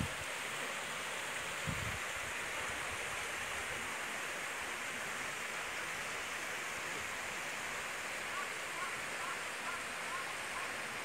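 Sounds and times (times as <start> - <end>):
stream running over rocks: 0.0 - 11.0.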